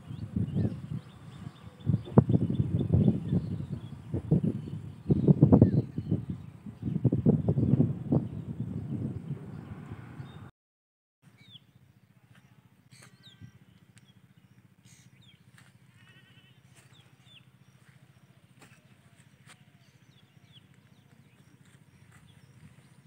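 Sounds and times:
bird chirps and trill: 12.9 - 15.4.

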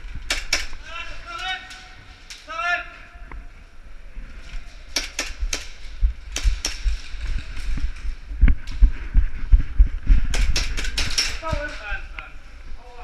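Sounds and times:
airsoft gun shots cracking: 0.3 - 0.8.

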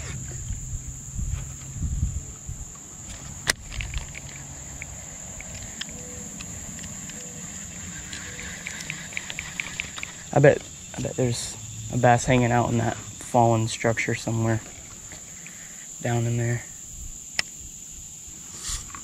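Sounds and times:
insects droning: 0.0 - 19.0
fishing reel ticking: 3.4 - 10.5.

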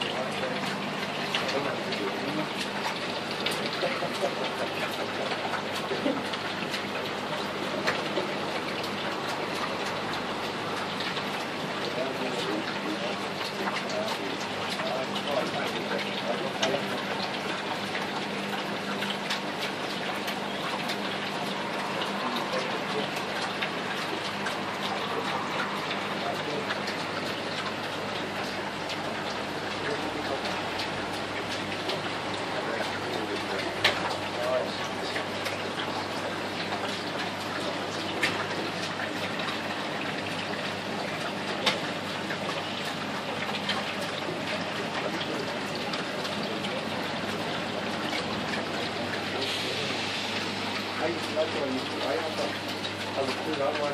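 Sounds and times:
water drips: 0.0 - 53.9
water splashing and trickling: 0.0 - 53.9.

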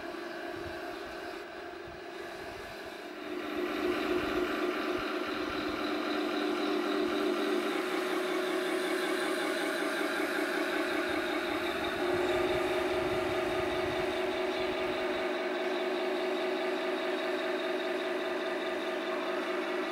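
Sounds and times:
electric motors whining: 0.0 - 19.9
simulated tank engine sound: 0.0 - 19.9.

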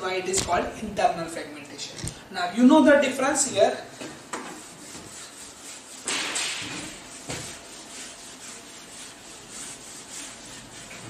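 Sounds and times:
duster rubbing on whiteboard: 4.3 - 11.0.

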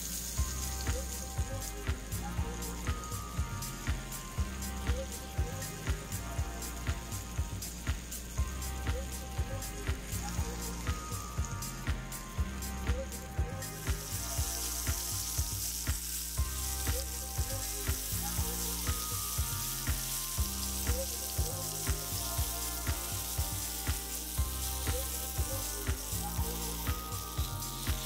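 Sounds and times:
fish sizzling in frying pan: 0.0 - 4.6, 13.7 - 28.0
background music with beat: 0.0 - 28.0.

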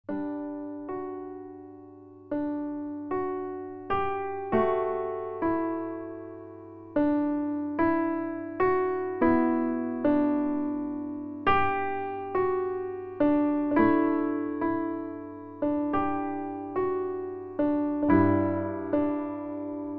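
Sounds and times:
gentle piano notes and chords: 0.1 - 19.9.

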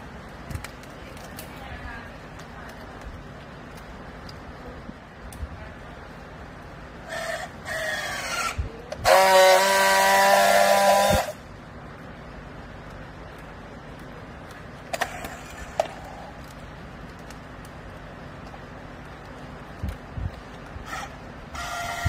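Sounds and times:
loud steady welding buzz: 0.0 - 22.0
strapping tool motor whine: 7.1 - 11.4, 20.8 - 22.0.

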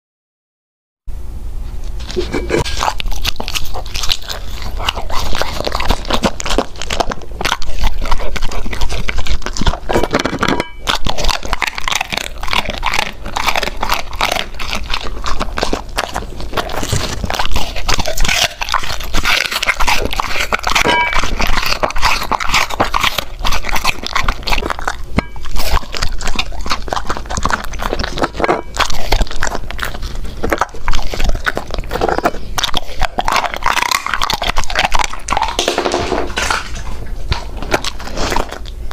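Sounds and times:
dog chewing food: 1.7 - 38.9.

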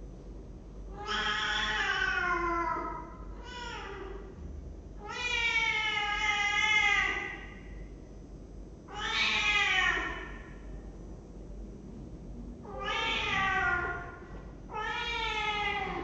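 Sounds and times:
cat meowing: 0.9 - 4.2, 5.0 - 7.5, 8.9 - 10.4, 12.6 - 16.0.

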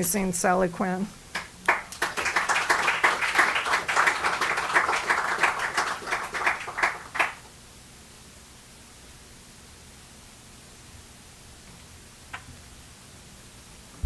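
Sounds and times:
small audience applauding: 1.3 - 7.5.

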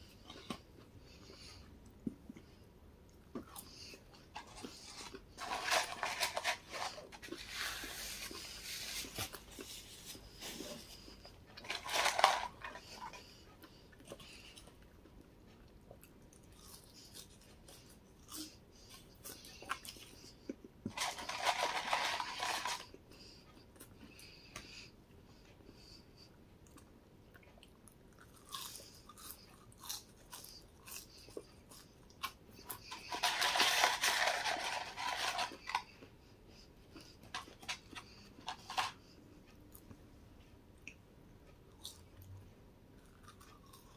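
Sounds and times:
paper rustling: 4.4 - 13.0, 20.9 - 22.9, 32.9 - 35.8
chewing: 8.3 - 20.8, 26.6 - 33.6, 43.0 - 43.9.

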